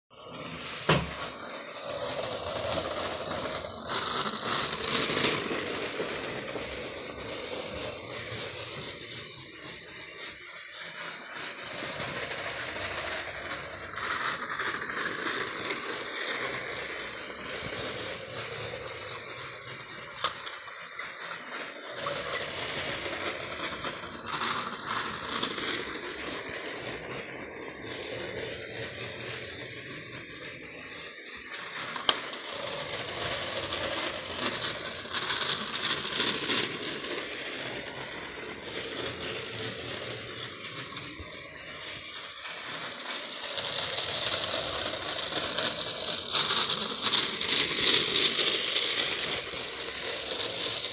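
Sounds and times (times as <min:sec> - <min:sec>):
toy train rattling on plastic track: 0:00.1 - 0:50.9.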